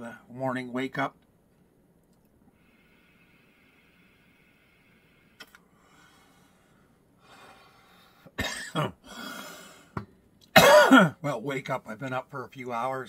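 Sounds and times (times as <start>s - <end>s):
long breathy exhale: 2.5s - 8.3s
man coughing: 8.4s - 9.1s, 10.5s - 11.2s.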